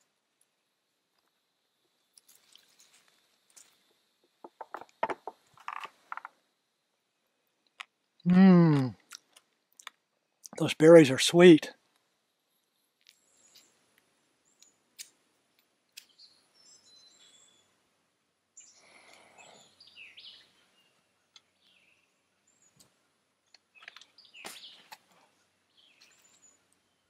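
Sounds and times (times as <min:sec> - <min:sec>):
small birds chirping: 0:09.1 - 0:17.9, 0:18.5 - 0:27.0.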